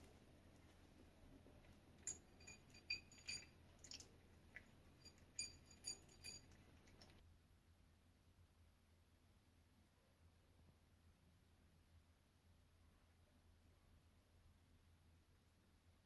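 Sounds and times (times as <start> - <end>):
cat eating from ceramic saucer: 0.6 - 7.2.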